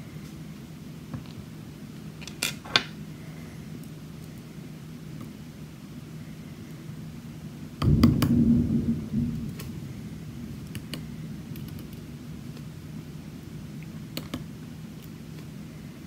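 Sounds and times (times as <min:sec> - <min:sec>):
steady low hum: 0:00.0 - 0:16.0
low rumble: 0:07.8 - 0:13.8.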